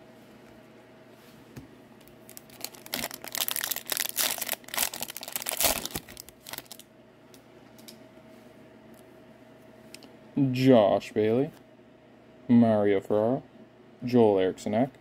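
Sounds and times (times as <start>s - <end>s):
foil wrapper crinkling and tearing: 2.2s - 6.8s.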